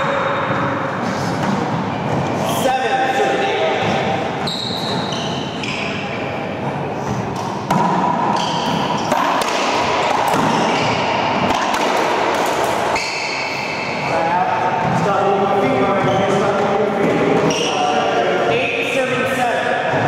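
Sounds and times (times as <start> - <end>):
ball striking walls and floor: 6.6 - 17.8
ball bouncing: 7.1 - 14.0
racquets smacking ball: 7.3 - 13.4.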